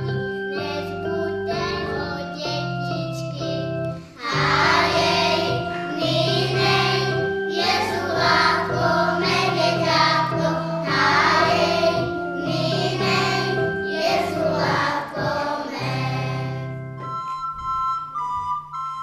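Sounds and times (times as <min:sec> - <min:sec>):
instrumental accompaniment: 0:00.0 - 0:19.0
children singing in unison: 0:04.2 - 0:16.8.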